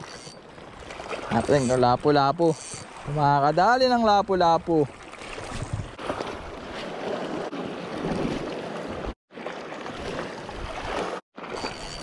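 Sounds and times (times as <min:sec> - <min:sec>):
sea water lapping: 0:00.0 - 0:12.0
wind on microphone: 0:05.3 - 0:06.6.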